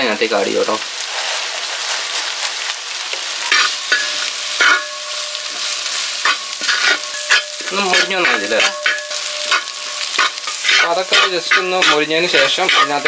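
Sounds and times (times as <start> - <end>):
oil sizzling in metal pan: 0.0 - 13.0
spoon scraping pan: 3.5 - 13.0.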